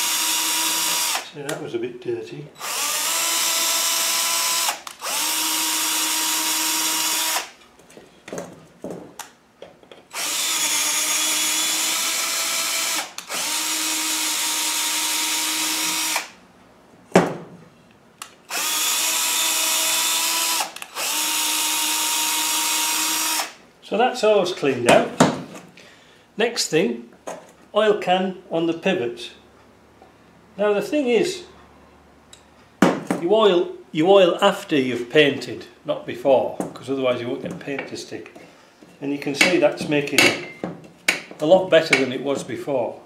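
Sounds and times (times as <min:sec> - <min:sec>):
cordless drill motor whining: 0:00.0 - 0:01.2, 0:02.6 - 0:07.5, 0:10.1 - 0:16.3, 0:18.5 - 0:23.5.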